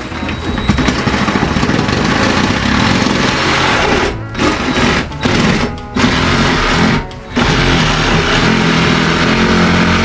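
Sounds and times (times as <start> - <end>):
power saw cutting wood: 1.7 - 10.0.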